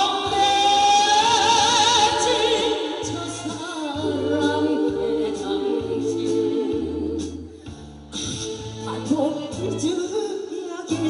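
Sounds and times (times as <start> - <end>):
recorded backing band: 0.0 - 11.0.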